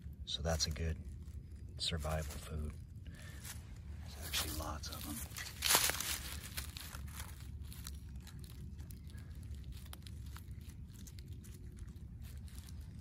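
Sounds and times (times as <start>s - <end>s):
low steady rumble: 0.0s - 13.0s
dry leaves rustling: 0.3s - 13.0s.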